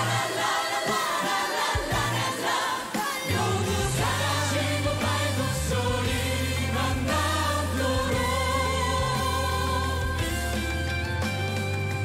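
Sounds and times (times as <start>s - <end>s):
choir singing in harmony: 0.0s - 10.8s.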